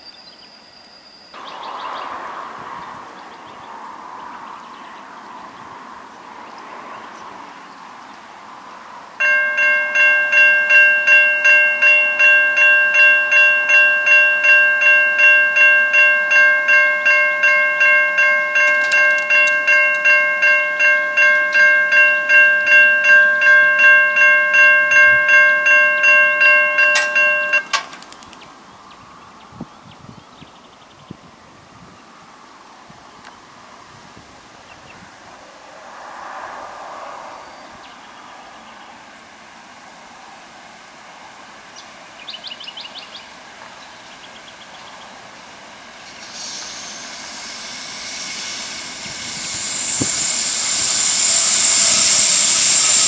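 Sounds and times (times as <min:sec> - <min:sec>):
level crossing warning bell: 0:09.2 - 0:27.9, 0:45.4 - 0:53.0.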